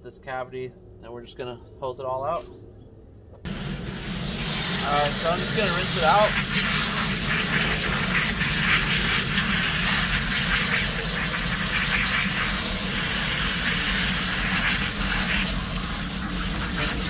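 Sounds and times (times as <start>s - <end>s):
garden hose spraying water: 3.5s - 17.0s.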